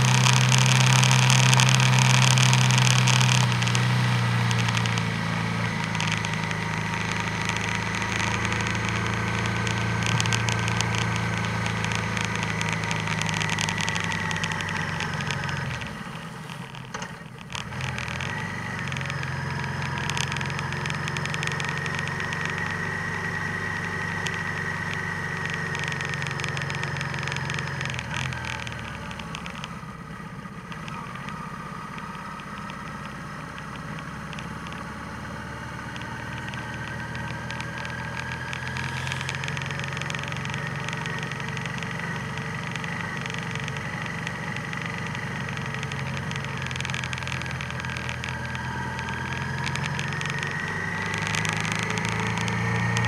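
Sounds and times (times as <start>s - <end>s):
vehicle engine running: 0.0s - 53.0s
steady high whine: 35.6s - 52.8s.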